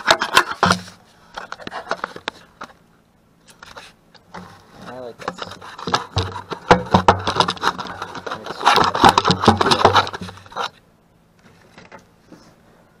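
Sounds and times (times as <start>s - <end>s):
hand tools clattering and scraping: 0.0s - 2.4s, 3.6s - 10.8s.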